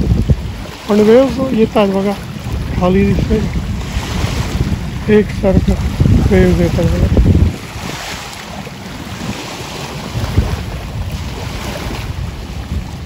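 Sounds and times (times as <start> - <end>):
waves washing over rocks: 0.0 - 13.0
wind buffeting microphone: 0.0 - 13.0.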